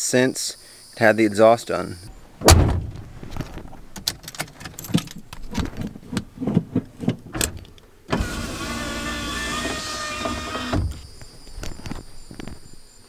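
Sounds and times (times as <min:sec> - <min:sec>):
sharp thud: 0:02.4 - 0:03.1
things being handled: 0:02.9 - 0:07.8.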